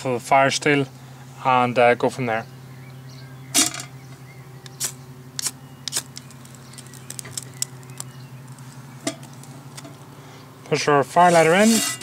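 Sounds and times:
steady low hum: 0.0 - 12.0
fire steel rasping strikes: 11.2 - 12.0.

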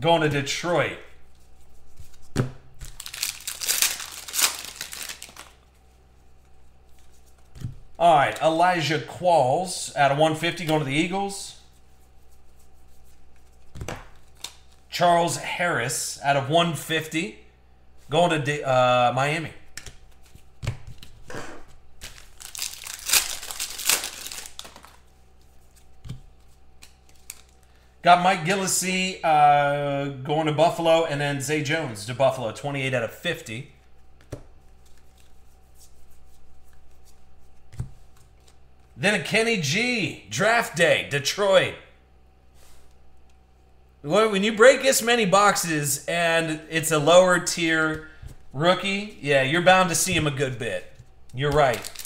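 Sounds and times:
foil wrapper tearing and crinkling: 2.9 - 5.6, 22.0 - 25.0, 51.4 - 52.0.

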